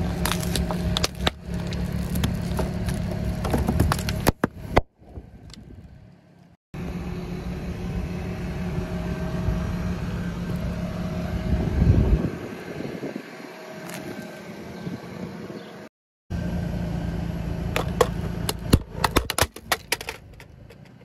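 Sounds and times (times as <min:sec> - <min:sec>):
car engine running: 0:00.0 - 0:04.8, 0:05.9 - 0:15.6, 0:16.3 - 0:21.0.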